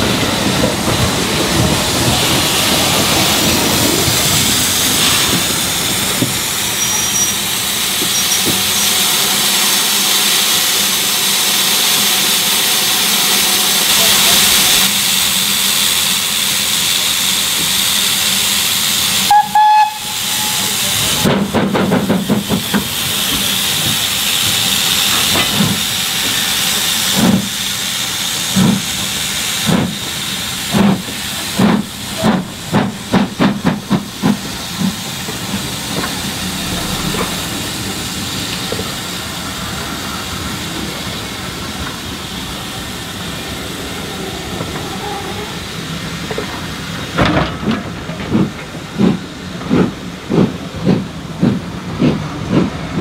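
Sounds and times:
steam exhaust beats: 0:00.0 - 0:53.0
steam hissing: 0:00.0 - 0:53.0
steam locomotive whistle: 0:06.8 - 0:07.5, 0:19.2 - 0:21.3.

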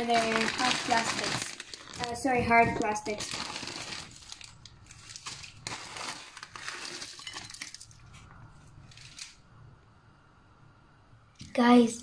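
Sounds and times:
plastic packet crinkling: 0:00.0 - 0:09.4.

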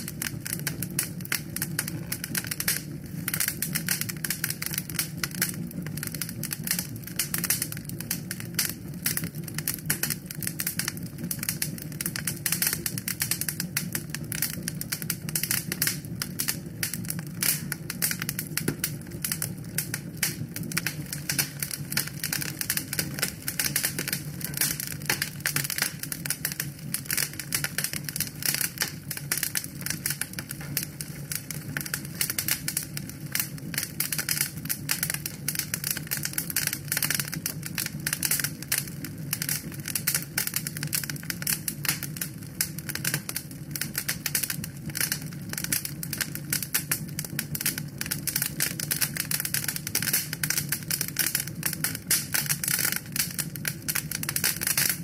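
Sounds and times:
low rush of flame: 0:00.0 - 0:09.4, 0:10.6 - 0:36.0
log fire crackling: 0:00.0 - 0:55.0.

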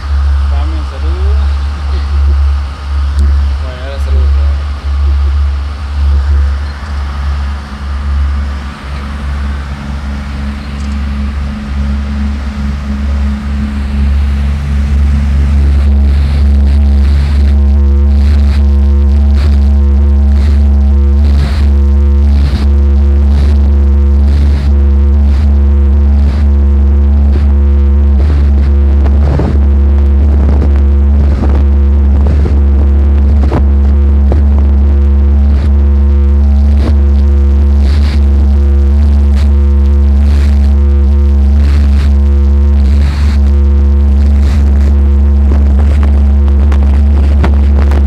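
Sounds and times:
soft rushing pulse: 0:00.0 - 0:18.0
boat engine droning: 0:00.0 - 0:48.0.

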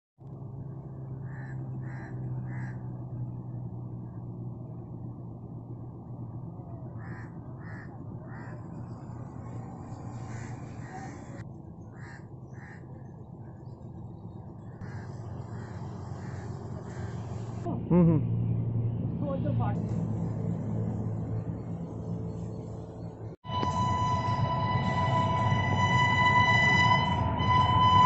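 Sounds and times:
low hum: 0:00.2 - 0:28.0
crow cawing: 0:01.2 - 0:02.9, 0:07.0 - 0:08.8, 0:10.1 - 0:13.0, 0:14.8 - 0:17.3.

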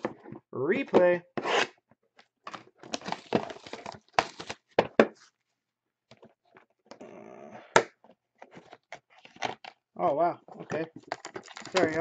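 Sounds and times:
plastic wrap crackling: 0:02.8 - 0:04.6, 0:11.2 - 0:12.0.

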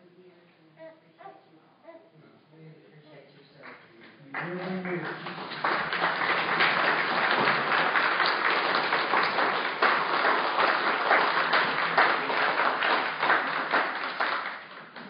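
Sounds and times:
crowd applauding: 0:04.3 - 0:15.0.

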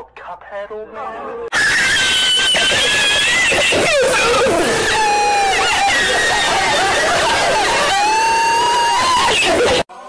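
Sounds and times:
long held shriek: 0:01.5 - 0:06.6
high-pitched screaming voices: 0:01.5 - 0:10.0.

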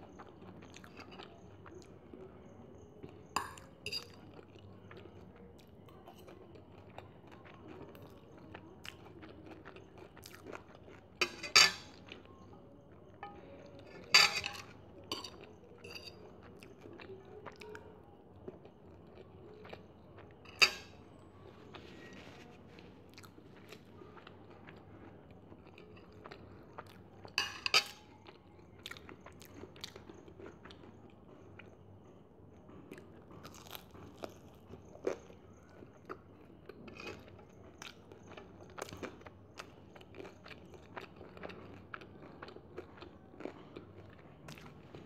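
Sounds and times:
crunching fried chicken: 0:00.0 - 0:45.0.

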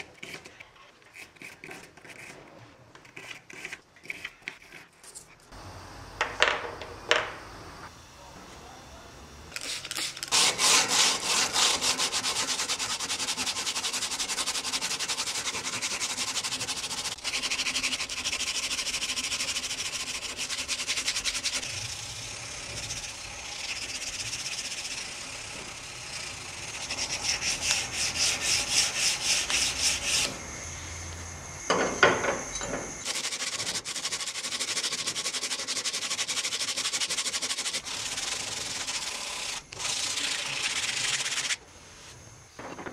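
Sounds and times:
sandpaper scraping metal: 0:09.6 - 0:21.8, 0:22.7 - 0:25.7, 0:26.7 - 0:30.3, 0:33.0 - 0:41.6.

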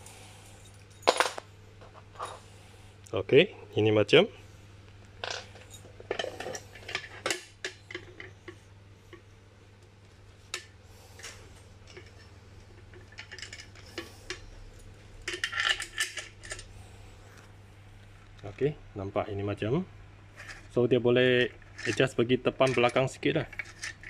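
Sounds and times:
small metal parts clinking: 0:00.5 - 0:02.4, 0:10.6 - 0:16.7, 0:21.5 - 0:24.0.

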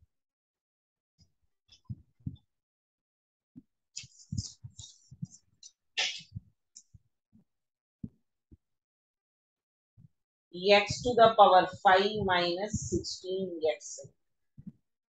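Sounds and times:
soft low thuds: 0:10.7 - 0:13.2.

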